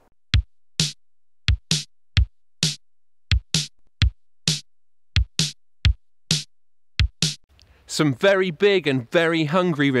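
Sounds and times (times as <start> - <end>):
electronic drum beat: 0.0 - 7.5.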